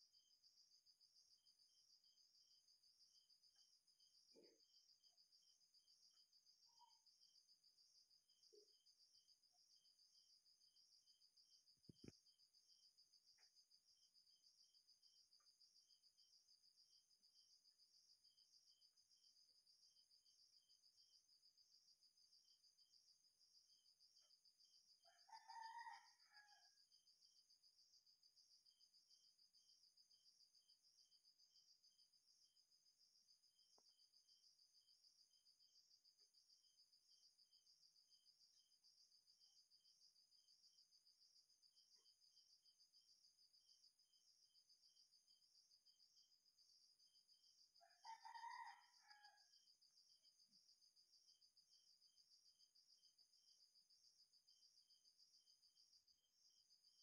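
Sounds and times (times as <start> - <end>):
drawn-out insect call: 0.0 - 57.0
faint crickets chirping: 0.0 - 57.0.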